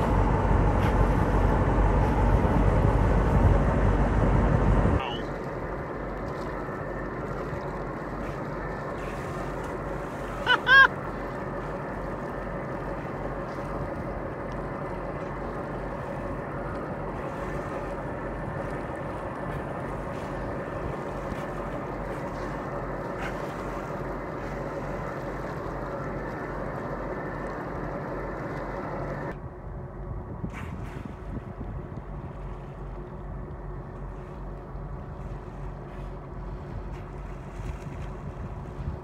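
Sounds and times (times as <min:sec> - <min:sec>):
wind on microphone: 0:00.0 - 0:10.1, 0:29.2 - 0:39.0
boat motor running: 0:00.0 - 0:39.0.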